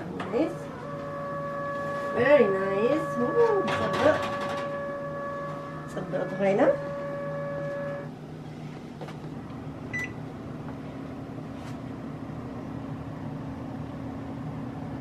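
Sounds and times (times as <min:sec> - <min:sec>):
steady low hum: 0:00.0 - 0:15.0
steady higher tone: 0:00.7 - 0:08.1.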